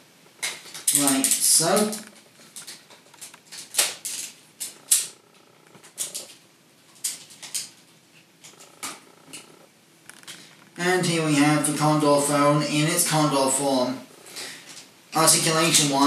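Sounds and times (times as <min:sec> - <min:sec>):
plastic toy parts clicking: 0:00.4 - 0:05.1, 0:07.0 - 0:07.8.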